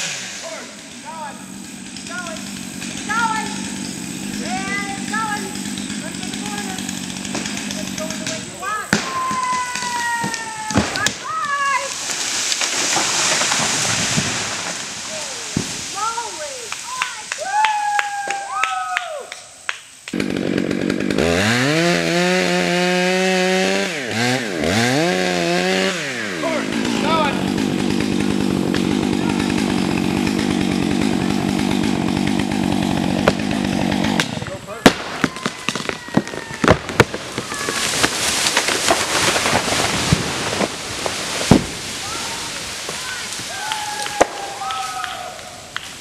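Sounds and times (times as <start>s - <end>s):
chainsaw revving: 0.0s - 8.7s, 11.9s - 17.2s, 20.1s - 34.8s, 37.1s - 43.6s
tree wood cracking: 0.0s - 17.9s, 20.1s - 46.0s
falling tree branches rushing: 10.7s - 16.7s, 35.7s - 45.4s.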